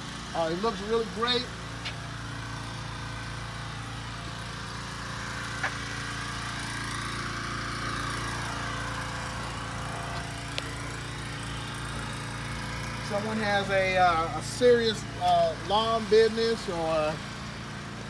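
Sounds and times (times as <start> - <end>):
truck engine idling: 0.0 - 18.0.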